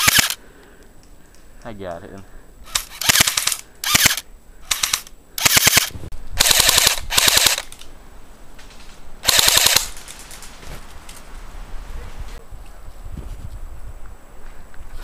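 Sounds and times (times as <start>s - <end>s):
airsoft rifle firing bursts: 0.0s - 0.4s, 2.7s - 7.7s, 9.2s - 10.0s.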